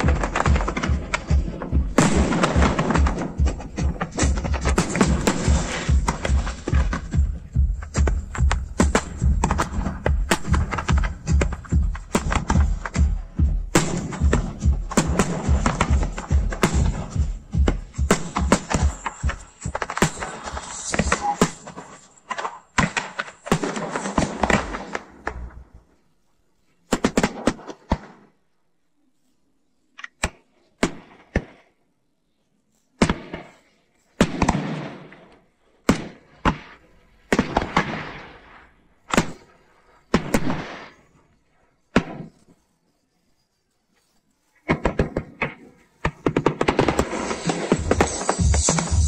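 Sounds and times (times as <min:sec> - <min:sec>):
firework bangs and crackling: 0:00.0 - 0:25.7, 0:35.8 - 0:41.2, 0:44.6 - 0:49.0.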